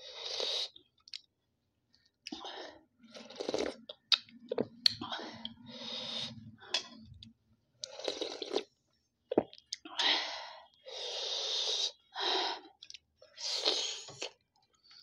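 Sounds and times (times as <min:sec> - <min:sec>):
slurping soup from spoon: 0:03.0 - 0:03.9, 0:07.8 - 0:08.7, 0:13.4 - 0:14.4.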